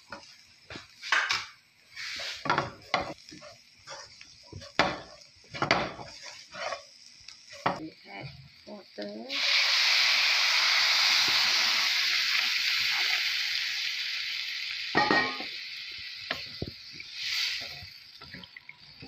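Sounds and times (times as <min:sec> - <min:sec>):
stirring knocks and scrapes in pan: 0:00.0 - 0:07.8
water sizzling in hot wok: 0:00.0 - 0:19.0.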